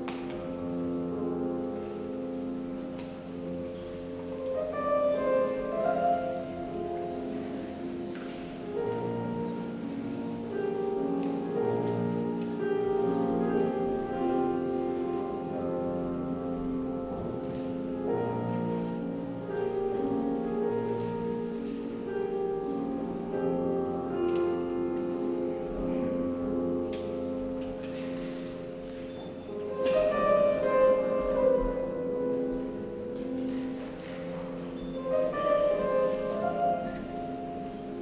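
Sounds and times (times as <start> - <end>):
solo grand piano piece: 0.0 - 38.0.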